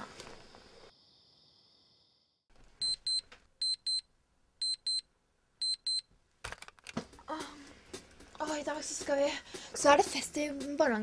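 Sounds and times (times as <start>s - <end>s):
alarm clock beeping: 2.8s - 4.0s, 4.6s - 5.0s, 5.6s - 6.0s.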